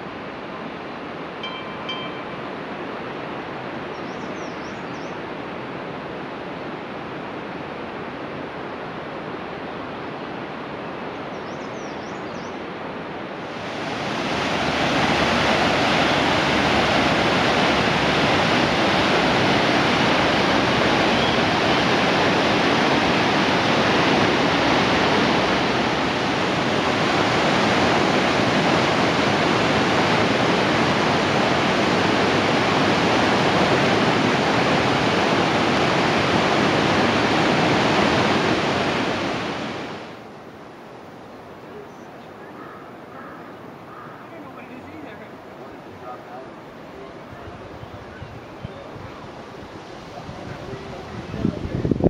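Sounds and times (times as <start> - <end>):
river rushing over rocks: 12.7 - 41.7.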